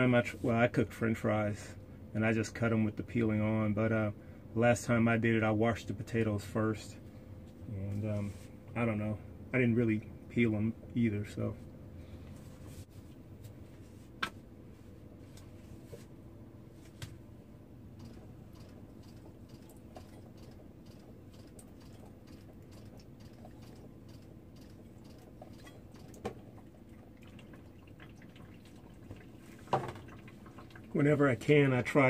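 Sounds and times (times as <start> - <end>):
steady low hum: 0.0 - 32.0
faint trickle of faucet water: 18.0 - 31.8.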